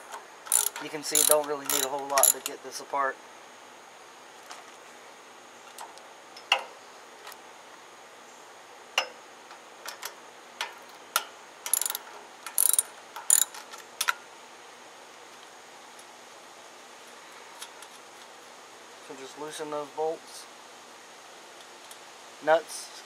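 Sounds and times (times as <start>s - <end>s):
ratchet wrench clicking: 0.5s - 2.6s, 11.7s - 13.6s.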